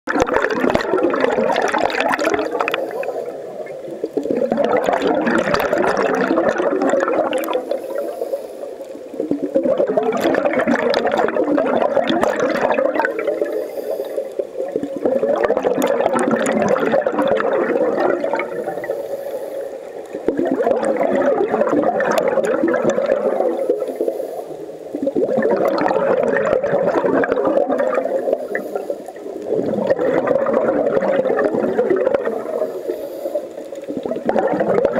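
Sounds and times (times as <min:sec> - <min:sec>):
bubbling regulator exhalations: 0:00.1 - 0:34.9
regulator inhalations: 0:07.6 - 0:09.0, 0:13.2 - 0:14.5, 0:18.5 - 0:20.1, 0:23.5 - 0:24.9, 0:28.1 - 0:29.3, 0:32.4 - 0:33.7.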